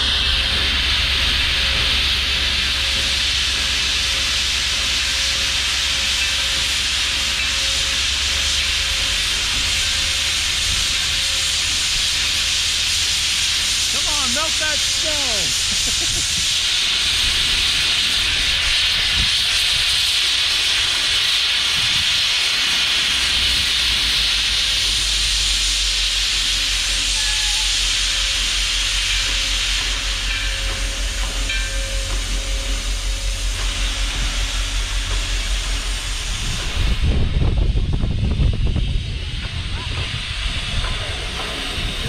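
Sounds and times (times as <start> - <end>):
steam locomotive hissing: 0.0 - 42.0
low regular pulsing: 28.6 - 42.0
low rumble: 32.5 - 42.0.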